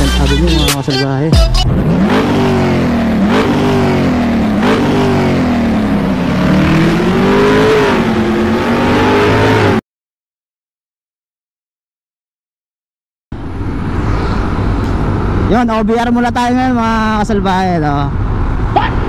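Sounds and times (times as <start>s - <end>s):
engine revving: 0.0s - 9.8s, 13.3s - 19.0s.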